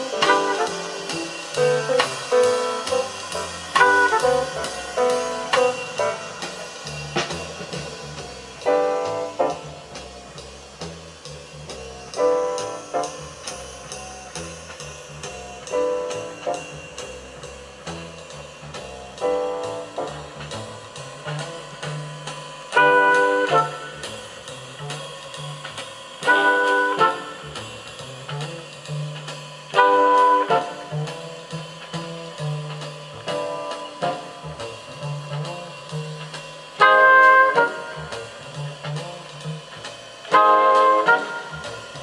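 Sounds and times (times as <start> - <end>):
piano or brass chords: 0.0 - 10.3, 19.2 - 25.2, 26.3 - 27.8, 29.7 - 31.5, 36.7 - 42.0
bass line: 0.0 - 42.0
drum kit beat: 0.0 - 42.0
instrumental jazz through speakers: 0.0 - 42.0.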